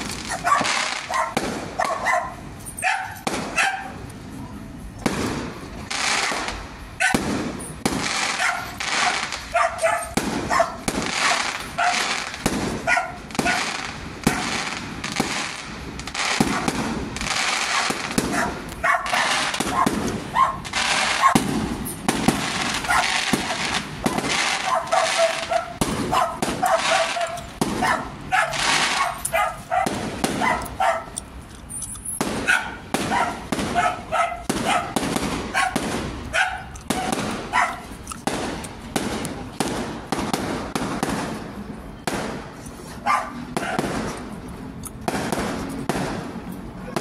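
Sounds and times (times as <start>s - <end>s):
fireworks bursting and crackling: 0.0s - 47.0s
dog barking: 0.3s - 4.0s, 7.0s - 7.2s, 8.3s - 12.1s, 12.8s - 13.7s, 16.4s - 16.8s, 17.7s - 21.5s, 22.8s - 31.2s, 32.4s - 37.9s, 43.0s - 43.9s.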